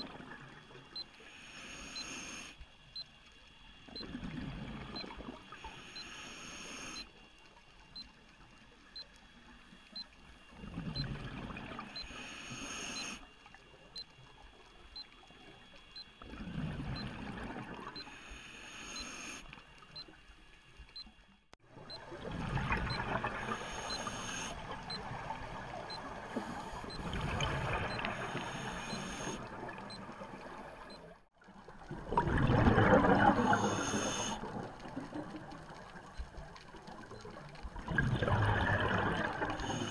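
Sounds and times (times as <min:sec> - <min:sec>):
regulator inhale hiss: 0:01.1 - 0:02.6, 0:05.5 - 0:07.1, 0:12.0 - 0:13.3, 0:18.0 - 0:19.6, 0:23.4 - 0:24.6, 0:26.1 - 0:29.4, 0:33.4 - 0:34.5, 0:39.5 - 0:39.9
exhaled bubbles gurgling: 0:03.9 - 0:05.6, 0:10.5 - 0:12.0, 0:16.2 - 0:18.0, 0:21.8 - 0:30.6, 0:31.4 - 0:39.9.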